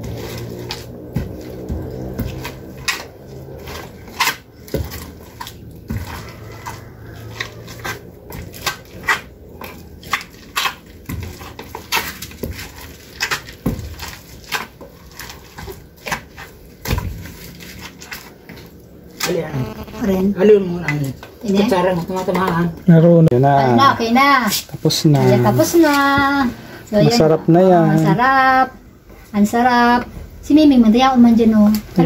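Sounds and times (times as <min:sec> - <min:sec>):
pestle knocking in wooden mortar: 0:00.0 - 0:05.2.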